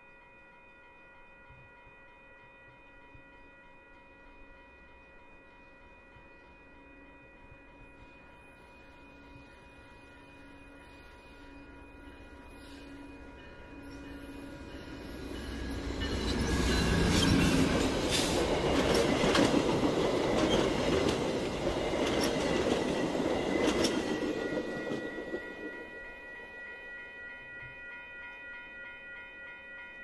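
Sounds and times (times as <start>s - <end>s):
diesel locomotive engine rumble: 11.8s - 25.9s
wheels clattering over rail joints: 16.0s - 25.2s.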